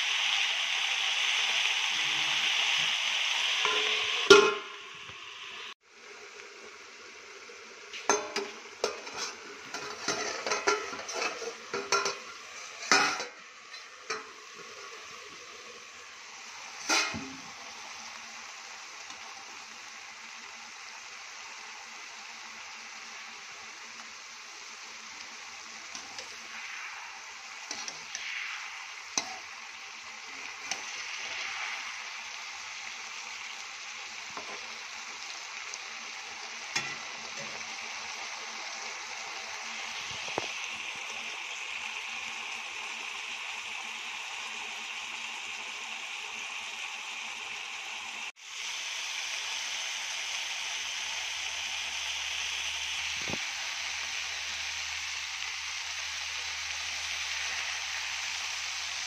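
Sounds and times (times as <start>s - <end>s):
food sizzling in a wok: 0.0s - 59.0s
metal lid clanking: 3.6s - 4.9s, 8.0s - 14.4s, 16.8s - 17.5s, 36.7s - 37.6s
metal spatula scraping a wok: 3.6s - 5.0s, 8.1s - 14.4s, 16.8s - 17.5s, 27.5s - 28.2s.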